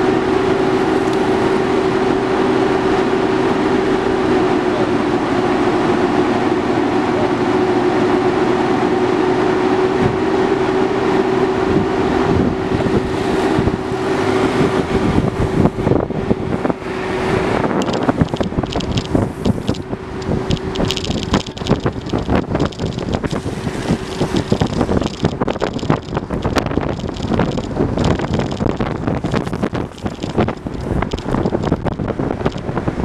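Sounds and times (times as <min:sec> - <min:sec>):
skateboard wheels rolling on asphalt: 0:10.0 - 0:33.0
wind buffeting microphone: 0:11.4 - 0:33.0.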